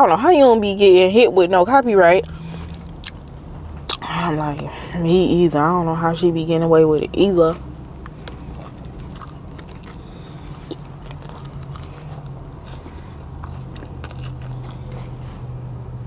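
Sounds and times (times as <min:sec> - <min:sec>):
steady low hum: 0:00.0 - 0:16.0
wet chewing with crunches: 0:02.1 - 0:04.7, 0:07.2 - 0:16.0.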